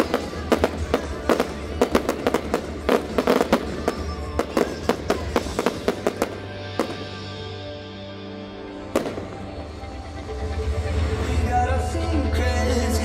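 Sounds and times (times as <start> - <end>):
fireworks bursts and bangs: 0.0 - 7.4, 9.0 - 9.8.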